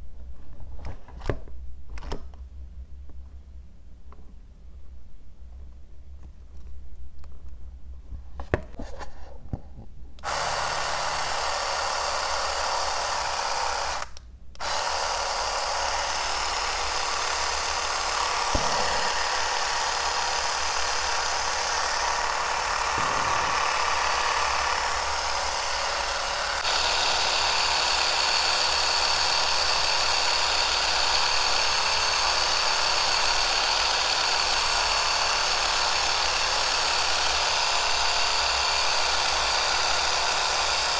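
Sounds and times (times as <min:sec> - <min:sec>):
epilator whirring: 0:10.2 - 0:40.9.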